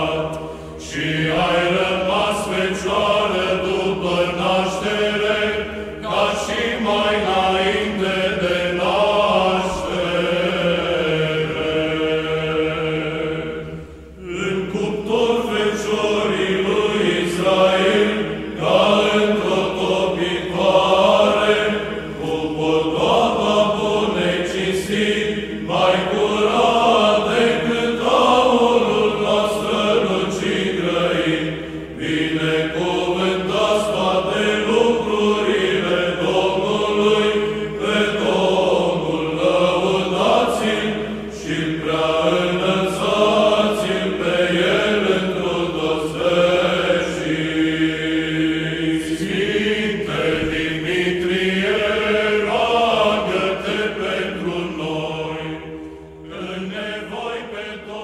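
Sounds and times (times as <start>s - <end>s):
liturgical chant: 0.0s - 58.0s.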